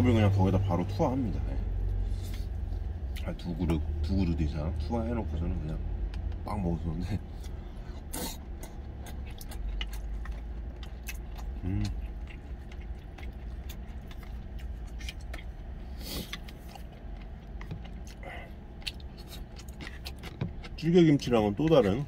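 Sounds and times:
chewing: 7.4s - 22.0s
person humming: 11.6s - 12.0s.

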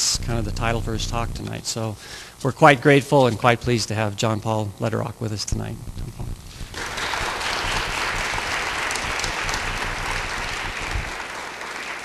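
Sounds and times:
low thumps: 0.0s - 1.8s, 5.5s - 11.1s
audience applauding: 6.7s - 12.0s.

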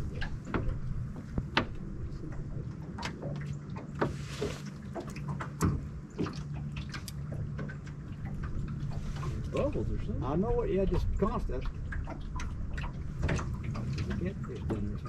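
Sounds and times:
low steady hum: 0.0s - 15.0s
water slapping against boat hull: 0.0s - 15.0s.

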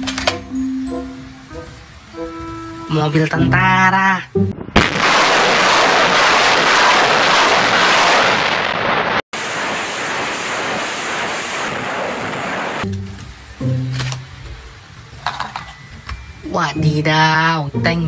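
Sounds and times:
rockets launching rushing noise: 4.6s - 12.9s.

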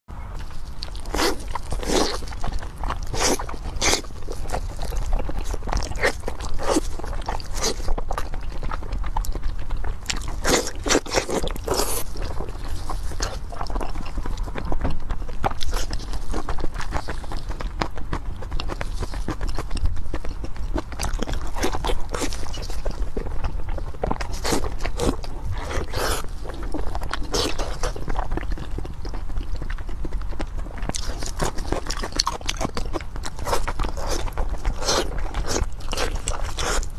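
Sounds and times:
biting and chewing pork: 0.4s - 36.9s.

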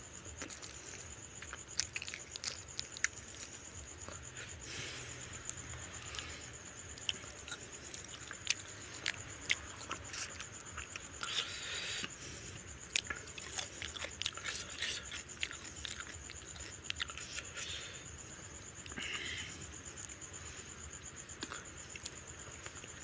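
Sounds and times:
wet chewing: 0.3s - 4.5s, 5.4s - 12.1s, 12.8s - 17.8s.

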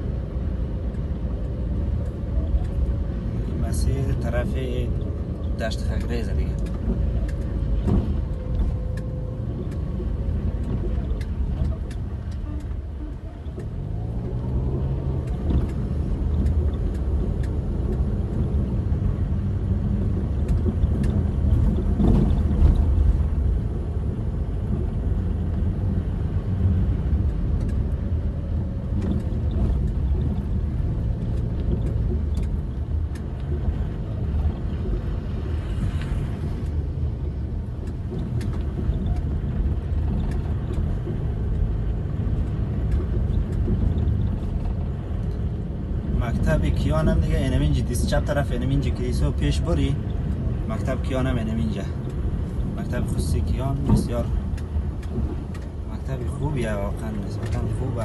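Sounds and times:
car engine and tyre rumble: 0.0s - 58.0s
small clicks and rattles: 27.0s - 58.0s.

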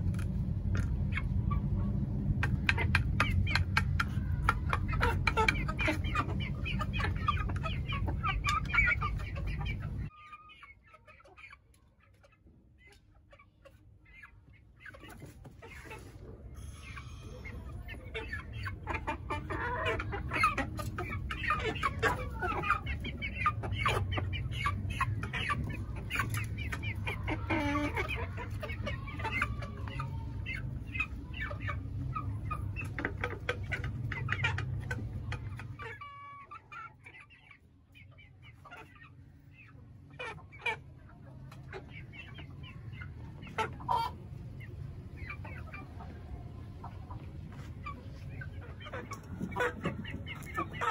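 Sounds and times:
low steady rumble: 0.0s - 10.1s
chickens clucking: 0.0s - 50.9s.

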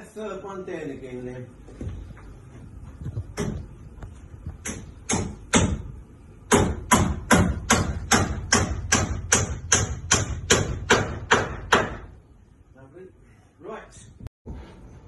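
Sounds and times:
hammer striking wood: 3.4s - 3.6s, 4.6s - 5.9s, 6.5s - 12.2s.

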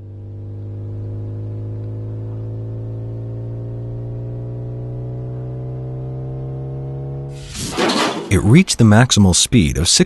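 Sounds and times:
cartoon car engine revving: 5.2s - 10.0s.

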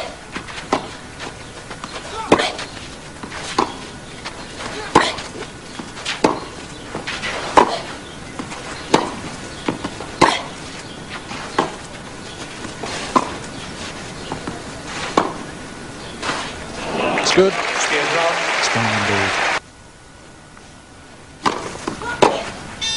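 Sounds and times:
tennis ball hit by racquets: 0.0s - 3.9s, 4.6s - 11.9s, 12.6s - 15.5s, 21.4s - 22.6s
tennis ball bouncing: 0.0s - 11.9s, 12.6s - 13.6s, 14.2s - 15.5s, 21.4s - 22.5s
crowd murmur: 14.2s - 19.6s.

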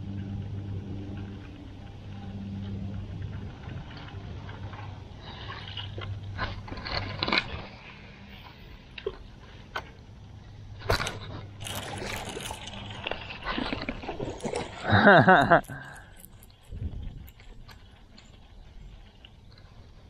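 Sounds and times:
electric boat motor humming: 0.0s - 19.5s
water sloshing: 10.9s - 17.8s.

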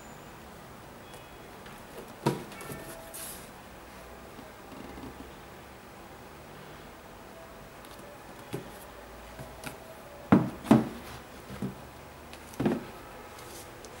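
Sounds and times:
shoe knocking on cardboard box: 10.3s - 11.0s.

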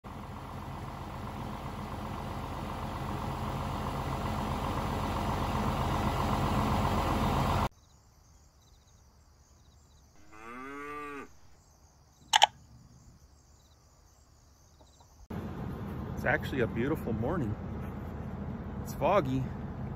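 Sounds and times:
tractor engine running: 0.0s - 7.7s, 12.3s - 12.6s, 15.0s - 19.9s
cow mooing: 10.2s - 11.5s
mouse click sound effect: 12.3s - 12.5s.

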